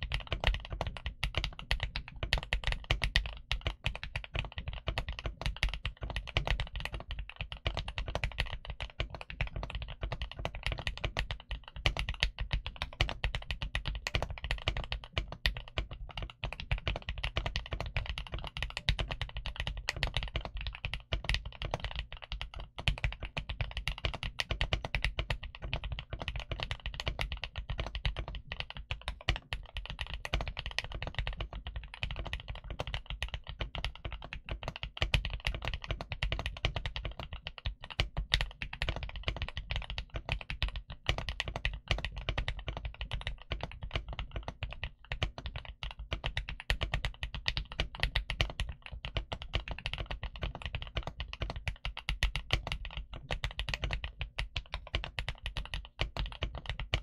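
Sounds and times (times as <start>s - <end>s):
fast mechanical keyboard typing: 0.0s - 57.0s.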